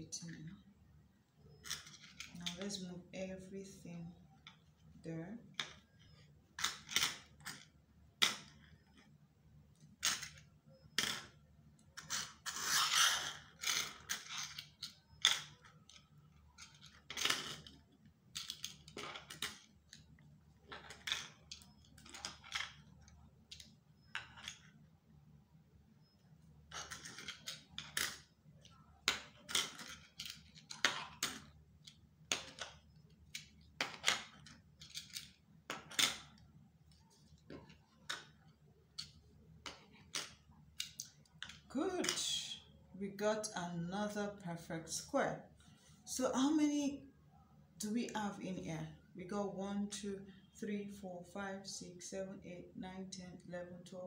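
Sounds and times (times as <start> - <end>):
badges scraping across table: 12.0 - 14.9.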